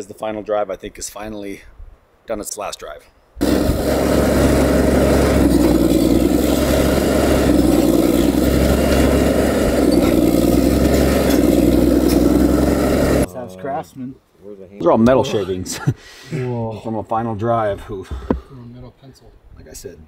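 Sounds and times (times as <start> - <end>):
bulldozer diesel engine running: 3.4 - 13.3.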